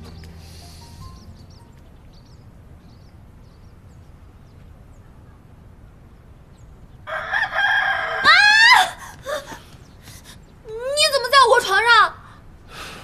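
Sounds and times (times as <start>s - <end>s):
background music: 0.0s - 2.4s
small birds chirping: 0.0s - 7.2s, 9.1s - 11.9s.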